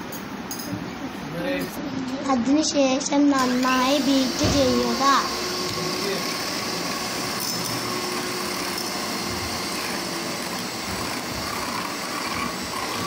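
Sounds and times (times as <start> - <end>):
electric hand mixer whipping: 3.4 - 13.0.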